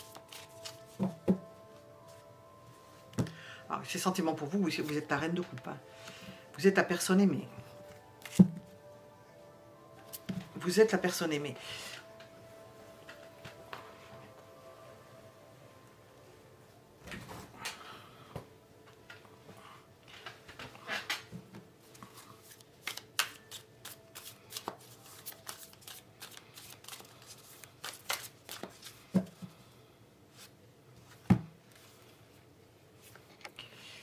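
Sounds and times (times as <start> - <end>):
cards being shuffled: 0.0 - 1.2, 8.2 - 8.6, 21.9 - 29.2.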